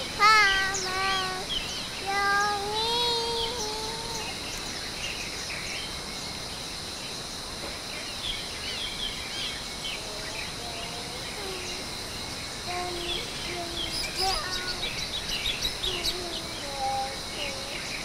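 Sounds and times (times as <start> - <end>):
child singing: 0.0 - 4.4, 10.0 - 12.0, 12.6 - 18.0
bird chirps: 0.0 - 6.0, 8.0 - 18.0
background hiss: 0.0 - 18.0
steady high hum: 0.0 - 18.0.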